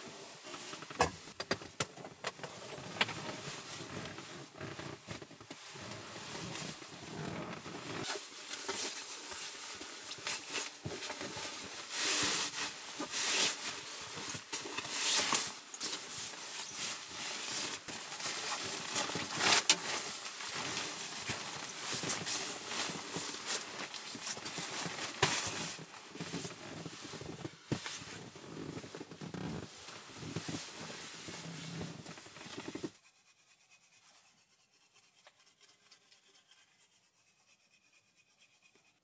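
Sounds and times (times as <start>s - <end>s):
fabric rustling and rubbing: 2.5s - 33.0s.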